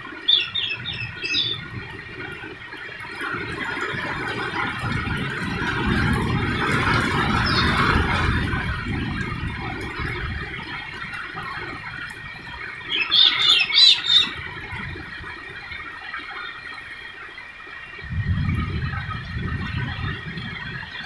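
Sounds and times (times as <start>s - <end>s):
heavy rain: 0.0s - 21.0s
low rumble: 18.0s - 21.0s.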